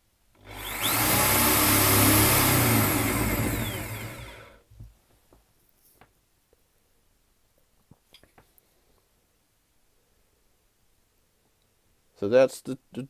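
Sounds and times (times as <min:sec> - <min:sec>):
power drill motor running: 0:00.4 - 0:04.6.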